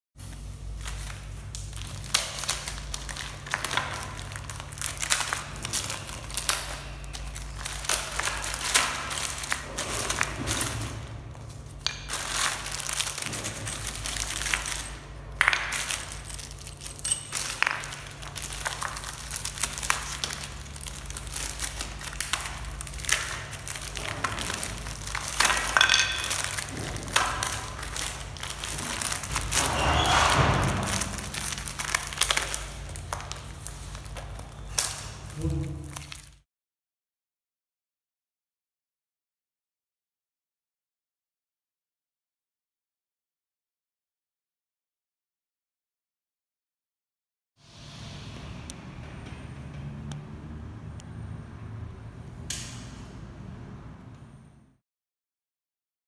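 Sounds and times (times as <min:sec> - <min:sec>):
plastic film crinkling: 0:00.2 - 0:36.4.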